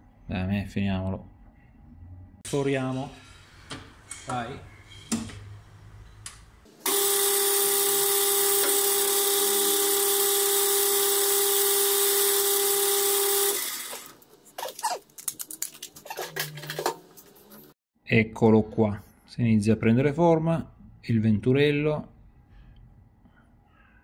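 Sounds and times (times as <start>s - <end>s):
lathe drilling whine: 6.8s - 14.1s.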